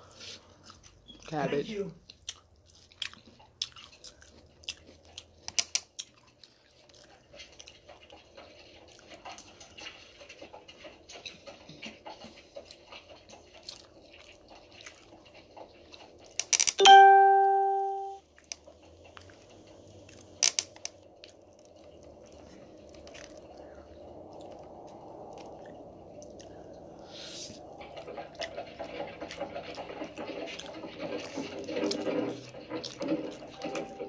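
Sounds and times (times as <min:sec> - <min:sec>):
chewing: 0:00.0 - 0:16.5, 0:18.4 - 0:33.9
loud ringing tone: 0:16.8 - 0:18.2, 0:33.6 - 0:34.0.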